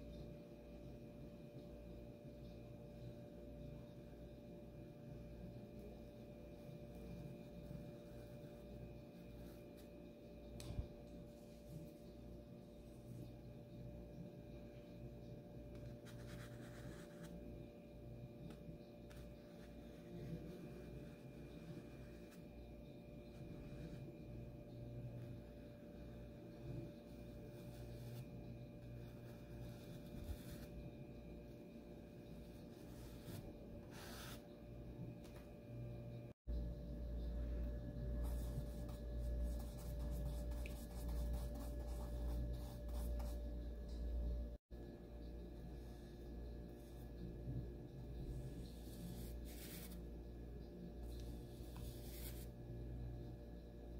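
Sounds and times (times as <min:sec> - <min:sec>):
steady low hum: 0:00.0 - 0:53.9
paintbrush strokes on canvas: 0:32.5 - 0:34.5, 0:48.3 - 0:50.0, 0:51.0 - 0:52.5
scratchy paintbrush strokes: 0:38.2 - 0:43.4, 0:48.3 - 0:50.0, 0:51.0 - 0:52.5.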